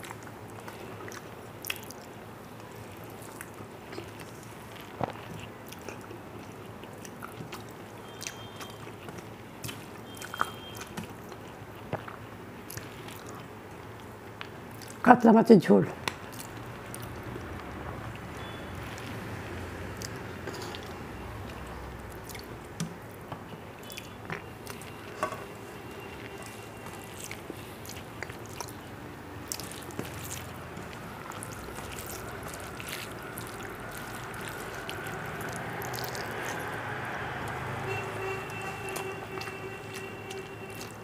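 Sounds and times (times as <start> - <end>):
chewing: 0.0 - 15.0, 16.0 - 23.2, 23.8 - 25.2, 26.0 - 37.9, 38.5 - 41.0
fingers squishing rice: 26.2 - 36.7.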